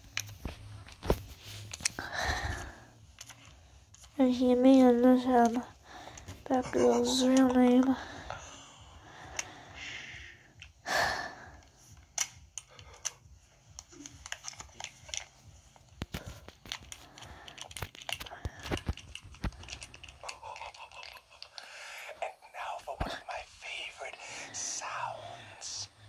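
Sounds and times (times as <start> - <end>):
crinkly rubbing noises: 0.0 - 8.0, 13.4 - 21.6
breathy rustle: 0.4 - 4.2, 5.3 - 26.0
small clicks and taps: 11.6 - 21.7.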